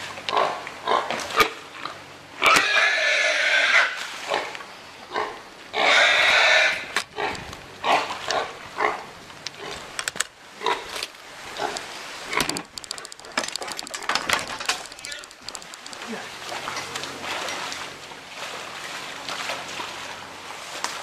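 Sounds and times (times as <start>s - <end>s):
wild hog squealing: 2.4s - 4.5s, 5.1s - 8.1s.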